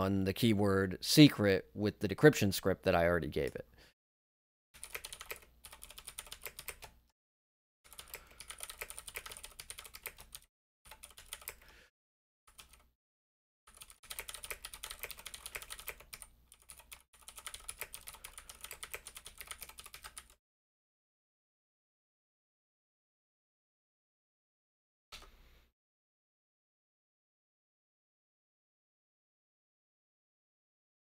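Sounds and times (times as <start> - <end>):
typing on computer keyboard: 4.8 - 7.0, 7.9 - 11.7, 12.5 - 12.9, 13.7 - 20.4.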